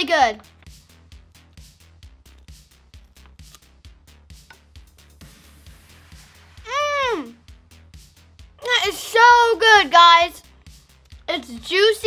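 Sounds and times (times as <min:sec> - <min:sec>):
background music with steady beat: 0:00.0 - 0:12.0
girl's drawn-out vocal sound: 0:06.7 - 0:07.4.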